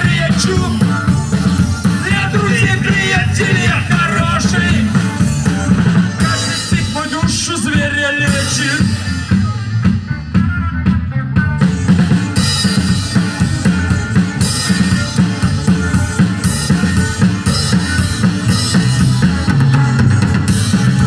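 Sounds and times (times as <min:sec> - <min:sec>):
live rock band playing: 0:00.0 - 0:21.0.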